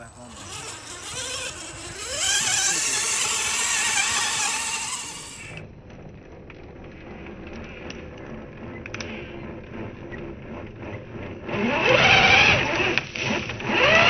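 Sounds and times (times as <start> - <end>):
motor revving and whining: 0.0 - 5.6, 10.6 - 14.0.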